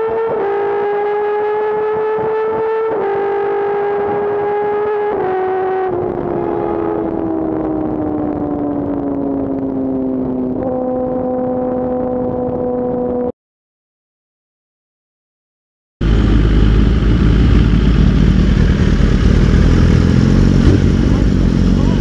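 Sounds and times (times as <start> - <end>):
motorcycle engine at high revs: 0.0 - 8.0, 16.0 - 22.0
wind rush: 5.9 - 13.3.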